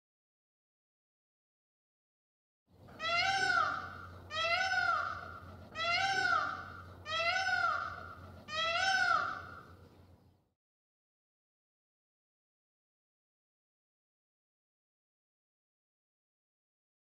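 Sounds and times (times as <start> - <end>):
peacock wailing calls: 3.0 - 9.7.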